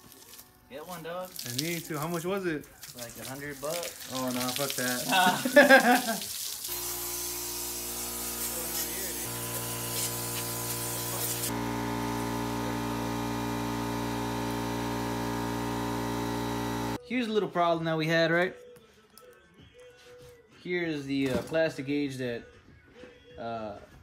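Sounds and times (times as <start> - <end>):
garden hose spraying water: 0.0 - 17.0.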